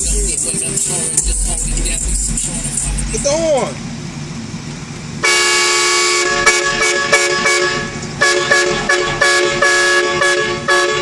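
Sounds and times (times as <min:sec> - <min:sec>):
train horn chord honking: 0:05.2 - 0:11.0.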